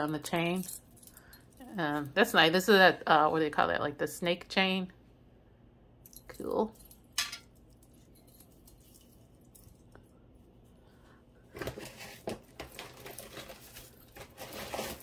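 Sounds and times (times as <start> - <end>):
jewelry clicking and clinking: 6.0 - 10.2.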